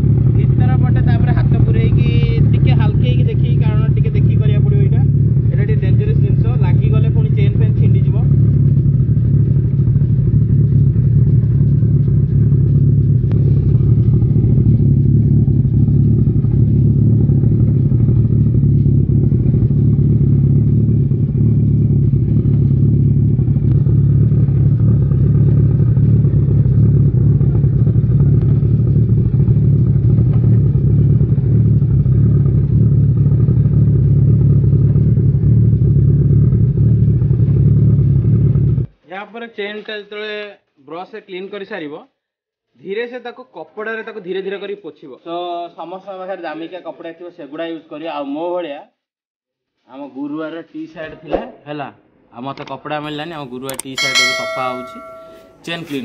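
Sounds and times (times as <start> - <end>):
motorcycle engine idling: 0.0 - 38.8, 53.8 - 56.0.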